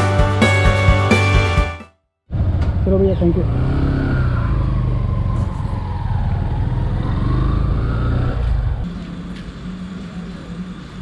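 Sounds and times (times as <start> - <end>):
motorcycle engine revving: 2.3 - 11.0.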